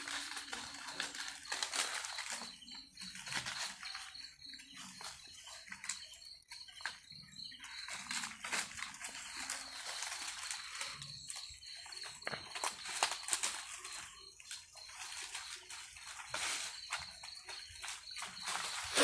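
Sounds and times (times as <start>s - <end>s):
insects chirring: 0.0s - 19.0s
rustling through vegetation: 0.0s - 19.0s.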